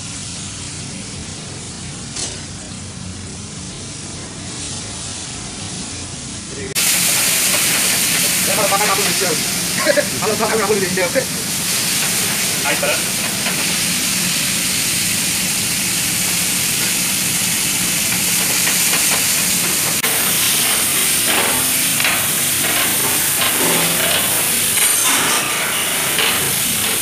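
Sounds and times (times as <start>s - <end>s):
metal utensil scraping a pan: 6.8s - 10.8s, 17.8s - 27.0s
meat sizzling in a pan: 6.8s - 27.0s.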